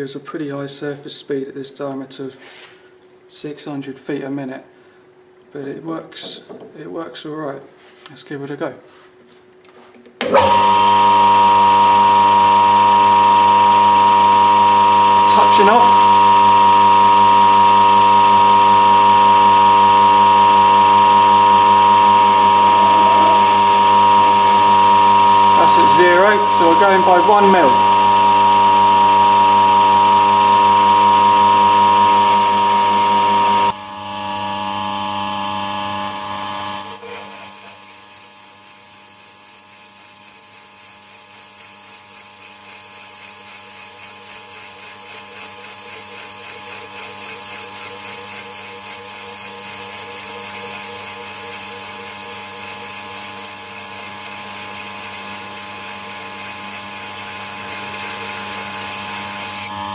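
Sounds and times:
metal lathe whining: 10.2s - 34.0s, 36.1s - 59.9s
high hiss from cutting: 22.1s - 24.8s, 32.0s - 33.9s, 36.1s - 59.7s.

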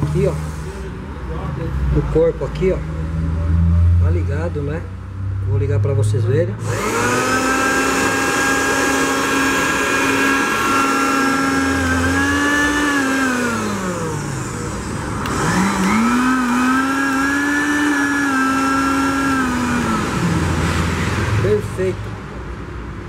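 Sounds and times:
blender motor whine: 6.6s - 21.6s.

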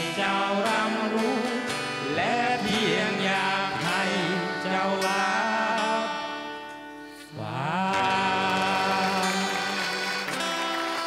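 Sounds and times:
men singing: 0.0s - 6.4s, 7.3s - 10.5s
acoustic guitar: 0.0s - 11.0s
accordion: 8.0s - 11.0s.

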